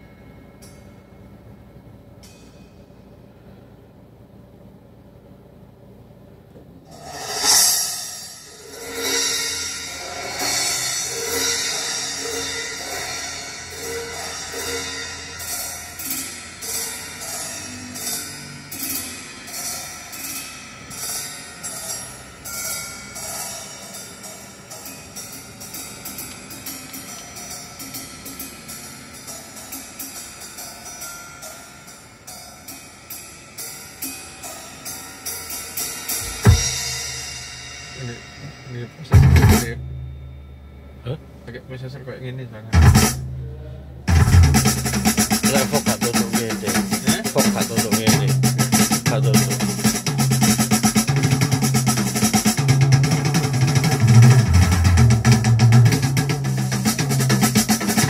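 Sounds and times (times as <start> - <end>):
drum solo through car speakers: 6.9 - 19.6, 35.9 - 40.5, 42.7 - 58.0
heavy low drum hit: 36.2 - 40.5, 42.7 - 58.0.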